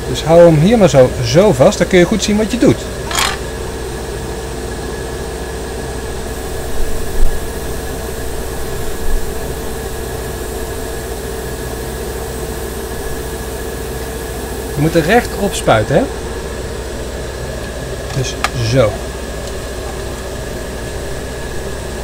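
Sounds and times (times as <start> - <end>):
airbrush motor hum: 6.1 - 18.0.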